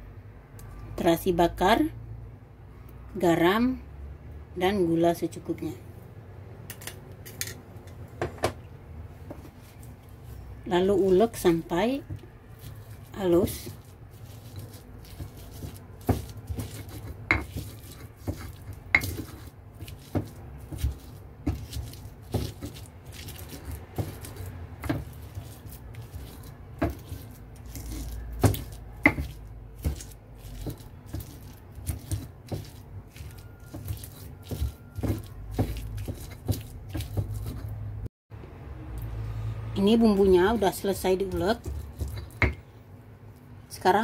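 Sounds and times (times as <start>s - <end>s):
stone pestle pounding in mortar: 12.0s - 37.7s, 41.2s - 42.6s.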